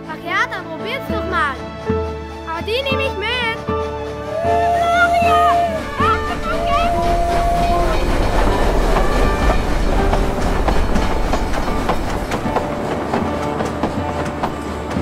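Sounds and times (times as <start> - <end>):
train wagons rumbling: 0.0 - 15.0
wheels clicking over rail joints: 4.6 - 15.0.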